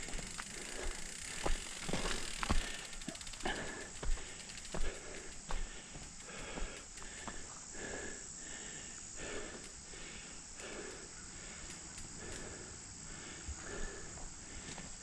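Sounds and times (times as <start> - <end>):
bike knocking on trail: 0.0 - 7.6
person breathing hard: 0.0 - 15.0
steady hiss: 0.0 - 15.0.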